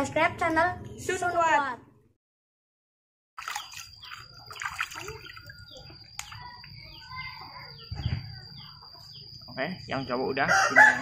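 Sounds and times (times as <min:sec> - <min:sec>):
water splashing in a basin: 0:03.4 - 0:06.5
birds chirping: 0:03.4 - 0:10.6.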